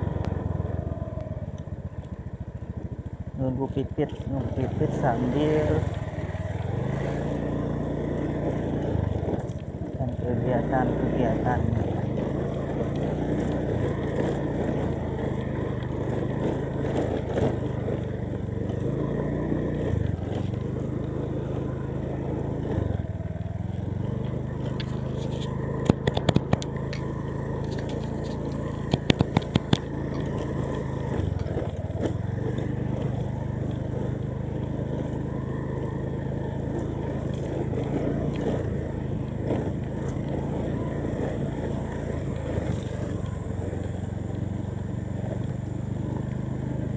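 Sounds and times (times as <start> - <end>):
motorcycle engine running: 0.0 - 46.9
sharp clicks or knocks: 25.8 - 27.0.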